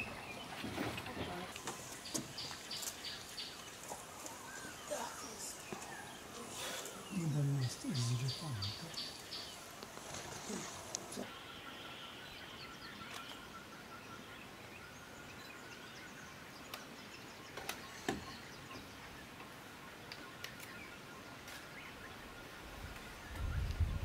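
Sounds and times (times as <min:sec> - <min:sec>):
bird chirps: 0:04.3 - 0:09.7.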